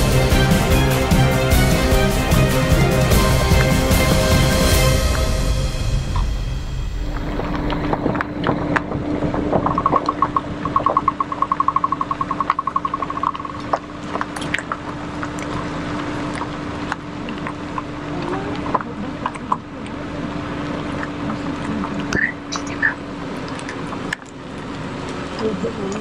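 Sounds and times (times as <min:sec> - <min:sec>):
rapid trill of high pulses: 0:09.6 - 0:13.6.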